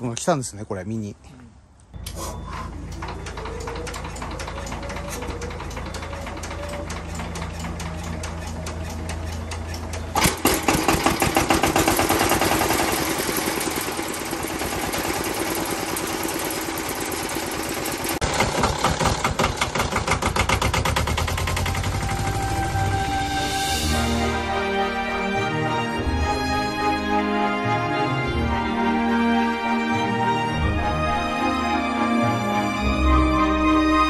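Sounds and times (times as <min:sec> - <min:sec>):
diesel engine idling and revving: 0:02.7 - 0:24.8.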